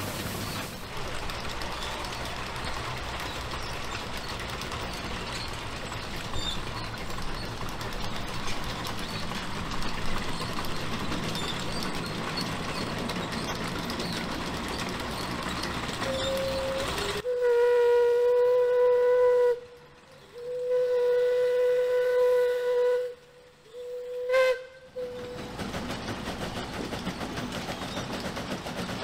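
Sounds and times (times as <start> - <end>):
steam venting hiss: 0.0 - 1.2
engine mechanical clatter: 0.0 - 17.3, 25.0 - 29.0.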